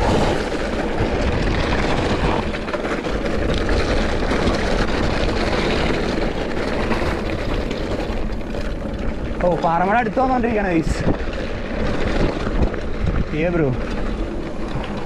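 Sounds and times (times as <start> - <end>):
bike rattling over rough ground: 0.0 - 15.0
wind on microphone: 10.7 - 15.0.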